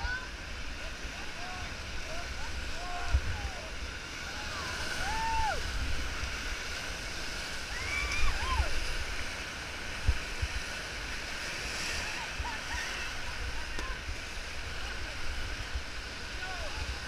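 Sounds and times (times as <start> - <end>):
whitewater rushing: 0.0 - 17.0
people shouting: 4.5 - 5.6.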